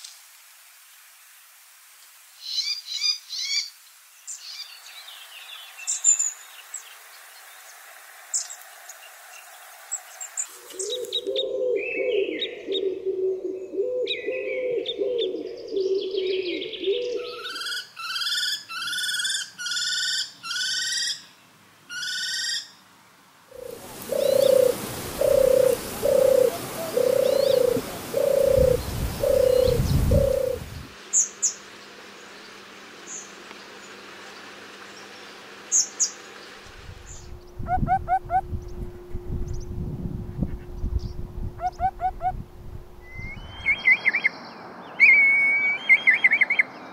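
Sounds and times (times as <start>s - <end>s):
wood pigeon cooing: 10.7s - 17.6s, 23.6s - 30.9s, 41.6s - 42.4s
bird rising notes: 23.6s - 30.9s, 36.6s - 44.3s
turtle dove purring: 23.6s - 30.9s
small birds chirping: 23.7s - 38.0s.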